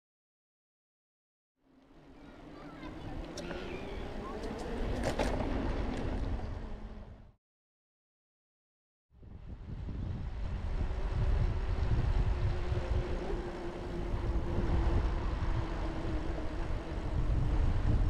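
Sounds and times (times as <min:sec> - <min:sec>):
tyre noise on pavement: 0:02.3 - 0:06.8
wind buffeting microphone: 0:09.2 - 0:18.0.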